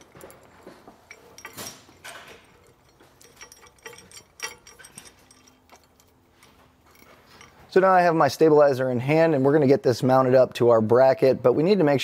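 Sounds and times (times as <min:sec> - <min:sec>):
metal clicks of nuts spun on: 0:00.0 - 0:07.6.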